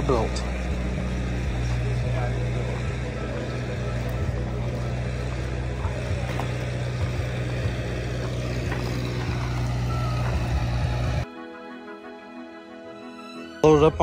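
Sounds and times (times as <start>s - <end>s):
engine humming: 0.0s - 13.4s.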